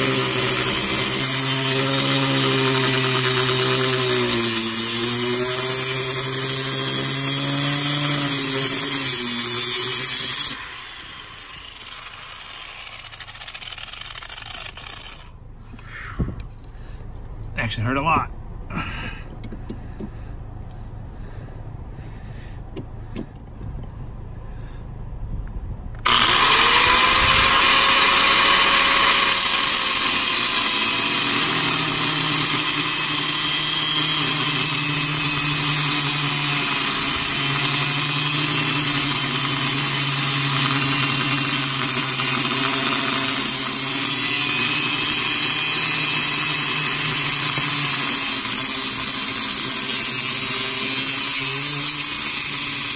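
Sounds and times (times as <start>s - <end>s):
angle grinder motor whine: 0.0s - 15.3s, 26.0s - 52.9s
grinder disc cutting metal: 0.0s - 15.4s, 26.0s - 52.9s.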